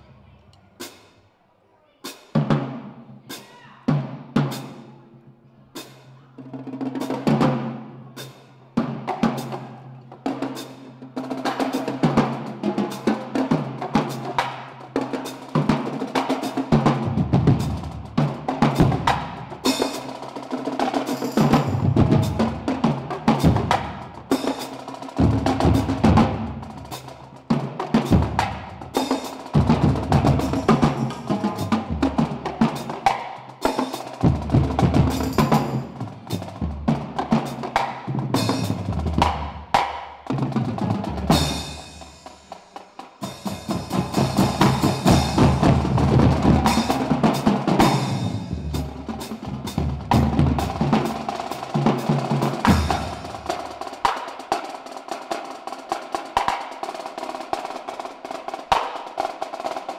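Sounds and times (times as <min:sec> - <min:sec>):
snare drums: 0:02.0 - 0:04.9, 0:05.8 - 0:59.9
tenor drums: 0:02.0 - 0:05.0, 0:05.8 - 0:59.9
cymbals: 0:06.9 - 0:59.9
bass drums: 0:16.7 - 0:19.8, 0:21.4 - 0:24.6, 0:25.2 - 0:33.2, 0:34.2 - 0:42.3, 0:43.2 - 0:53.8.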